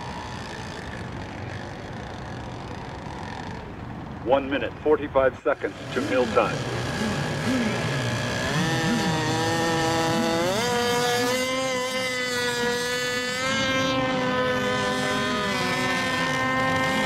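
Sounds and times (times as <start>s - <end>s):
model boat engines whining: 0.0s - 17.0s.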